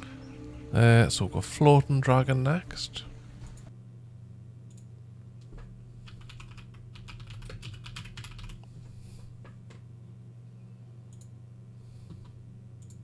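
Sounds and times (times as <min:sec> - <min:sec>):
typing on a keyboard: 0:06.0 - 0:08.6.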